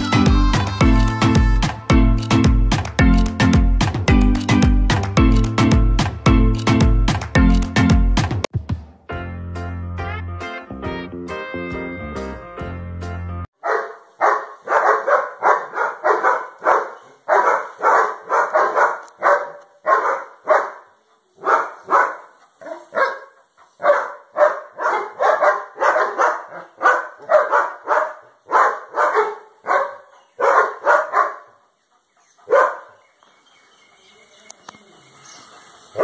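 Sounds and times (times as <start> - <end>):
dog barking: 13.6 - 31.6, 32.4 - 33.0.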